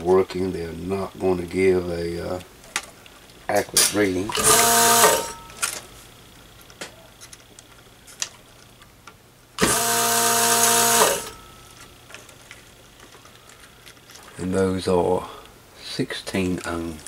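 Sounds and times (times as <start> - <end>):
low steady hum: 0.0 - 17.0
desoldering pump motor buzzing: 4.3 - 5.8, 9.6 - 12.2.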